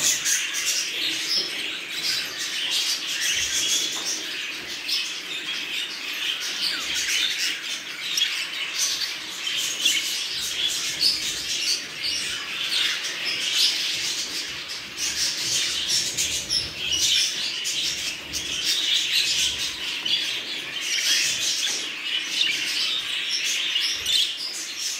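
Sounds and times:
budgerigars chattering and chirping: 0.0s - 24.9s.

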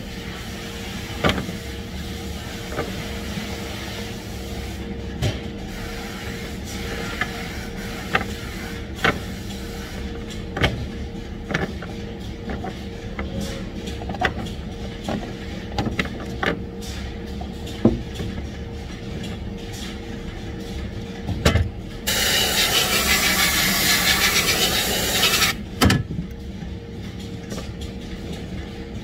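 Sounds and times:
factory hum: 0.0s - 29.0s
air blow gun hissing: 22.1s - 25.6s.

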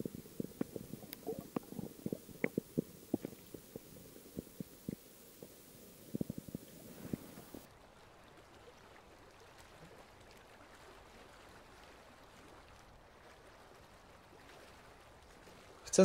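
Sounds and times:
muffled underwater knocks: 0.0s - 7.6s
water hiss: 0.0s - 7.7s.

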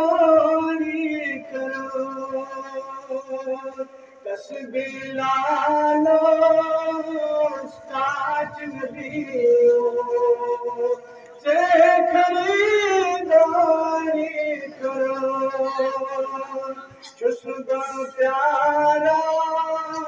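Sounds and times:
man singing devotional song: 0.0s - 20.0s.

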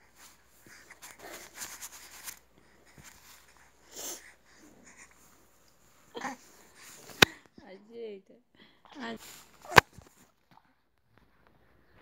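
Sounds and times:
short breathy sniff: 2.6s - 5.4s.

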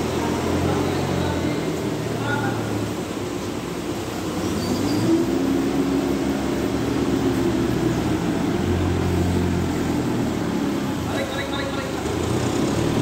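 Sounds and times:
forklift engine revving: 0.0s - 13.0s.

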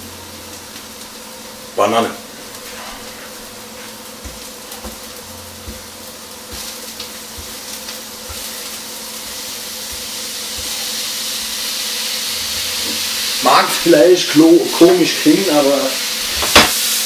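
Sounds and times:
steady low hum: 0.0s - 15.1s
food sizzling in a pan: 0.0s - 17.0s.

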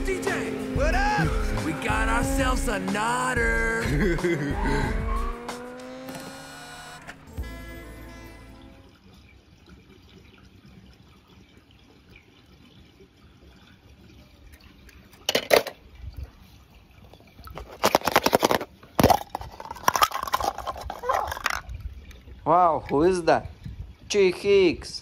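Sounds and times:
faint water trickle: 7.4s - 17.8s, 18.7s - 25.0s
toy cars splashing into water: 14.9s - 15.9s, 17.5s - 21.8s.

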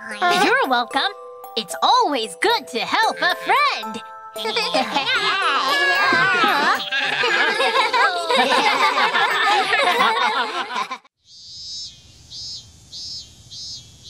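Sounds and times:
cartoon characters laughing: 4.4s - 11.1s
high-pitched chirping bursts: 11.2s - 14.0s.

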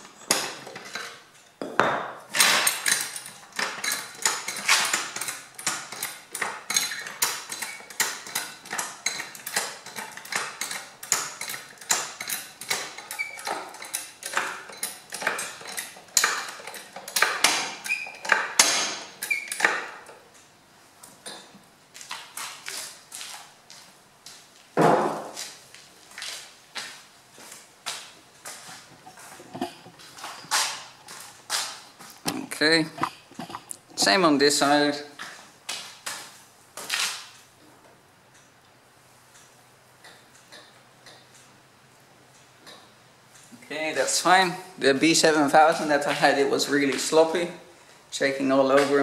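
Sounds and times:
floor jack clanking: 0.0s - 20.1s.

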